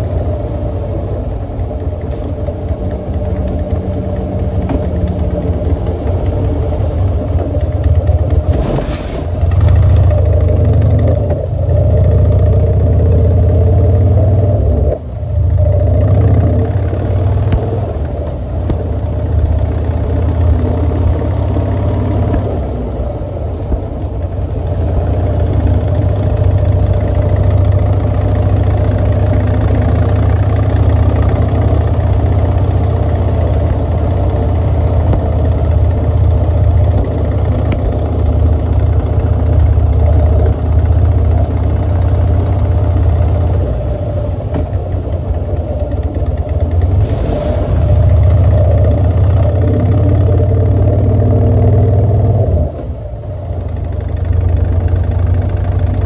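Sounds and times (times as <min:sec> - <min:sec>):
motorcycle engine running: 0:00.0 - 0:56.0
wheels clattering over cattle guard: 0:01.8 - 0:09.8.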